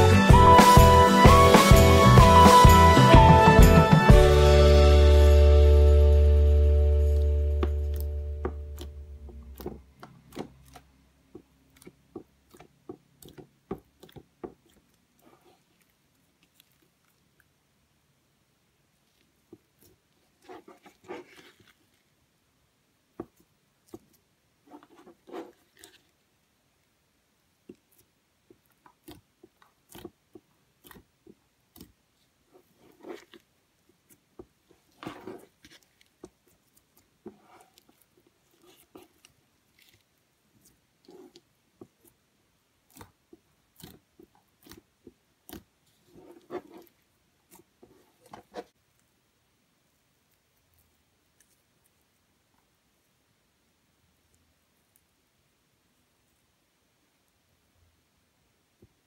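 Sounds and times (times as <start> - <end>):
slime squelching by hand: 6.9 - 17.6, 18.9 - 22.2, 23.2 - 26.3, 27.5 - 49.0.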